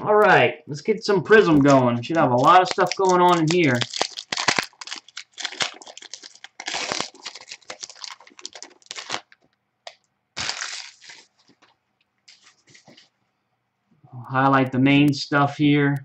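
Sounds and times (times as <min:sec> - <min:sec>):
foil wrapper tearing and crinkling: 0:01.4 - 0:09.5, 0:10.4 - 0:13.0.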